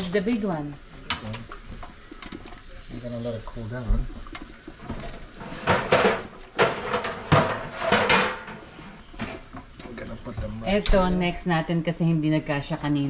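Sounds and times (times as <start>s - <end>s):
rustling and clattering in drawer: 4.9s - 9.4s.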